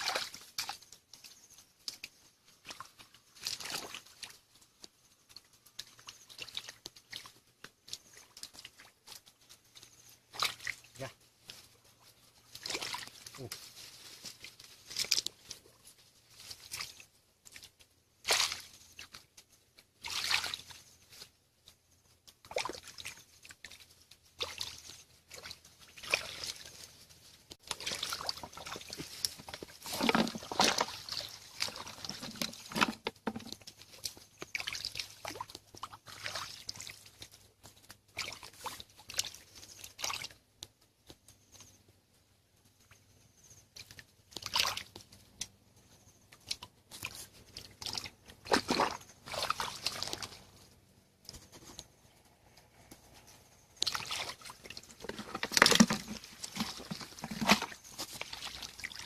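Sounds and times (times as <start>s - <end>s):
water trickling: 0.0s - 13.6s, 22.4s - 40.4s, 43.8s - 51.9s, 53.5s - 59.0s
hands splashing in muddy water: 1.9s - 4.5s, 10.2s - 11.0s, 12.4s - 13.5s, 16.6s - 19.3s, 20.0s - 20.9s, 22.4s - 27.0s, 27.6s - 40.4s, 46.4s - 50.6s, 53.8s - 59.0s.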